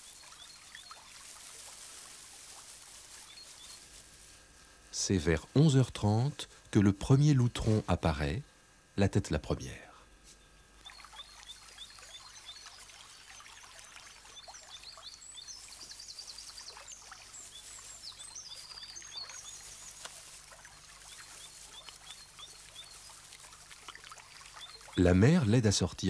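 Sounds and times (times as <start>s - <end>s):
faint rustling: 0.9s - 4.8s.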